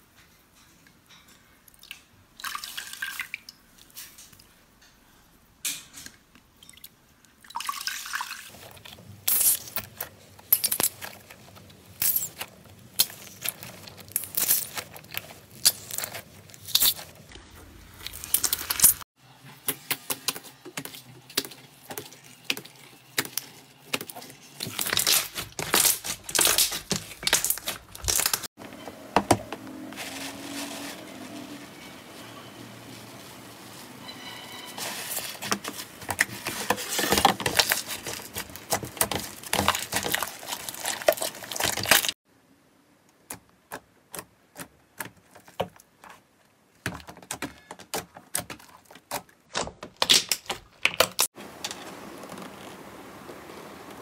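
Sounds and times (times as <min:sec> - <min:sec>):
slime squishing and popping: 0:21.4 - 0:28.5.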